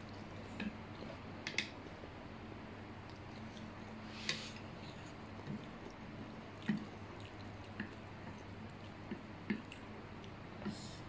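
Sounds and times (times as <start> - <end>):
wet eating sounds: 2.9 - 11.0.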